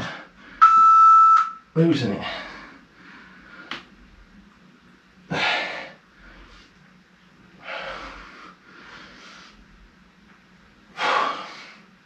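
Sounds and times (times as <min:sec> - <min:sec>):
man breathing hard: 0:07.6 - 0:09.6, 0:10.9 - 0:11.9.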